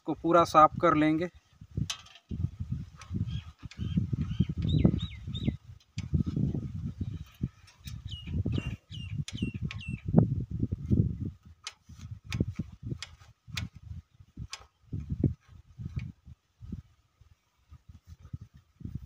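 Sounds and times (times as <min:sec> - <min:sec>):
bird chirping: 0:03.1 - 0:05.7, 0:06.9 - 0:10.1
sharp ticks: 0:08.9 - 0:10.0.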